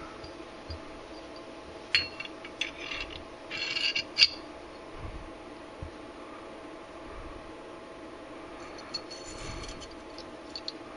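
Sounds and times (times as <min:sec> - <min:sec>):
steady low hum: 0:00.0 - 0:10.9
metal parts rattling: 0:01.9 - 0:04.5, 0:08.7 - 0:10.8.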